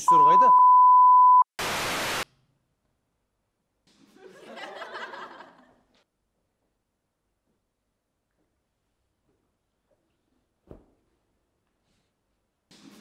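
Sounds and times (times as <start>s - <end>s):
censor bleep: 0.0s - 1.5s
static-like hiss: 1.6s - 2.2s.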